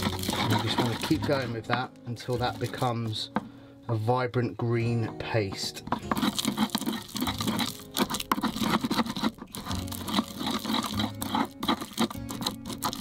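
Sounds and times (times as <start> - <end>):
pestle grinding in wooden mortar: 0.0 - 3.2, 5.5 - 13.0
background music: 0.0 - 13.0.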